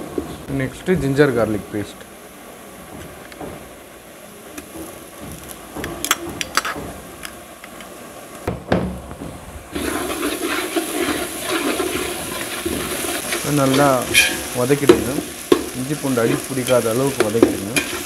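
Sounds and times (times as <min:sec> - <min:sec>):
paste sizzling in oil: 0:09.7 - 0:18.0
spatula scraping pot: 0:09.8 - 0:18.0.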